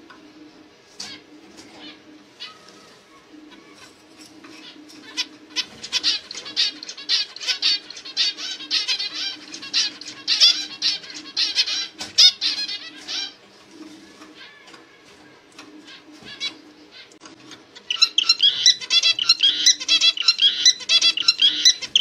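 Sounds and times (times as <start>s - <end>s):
finch chirping: 4.5s - 13.4s, 17.8s - 22.0s.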